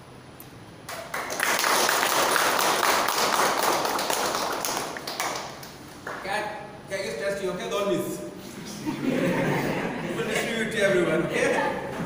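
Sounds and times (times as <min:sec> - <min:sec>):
small group clapping: 0:00.8 - 0:06.3.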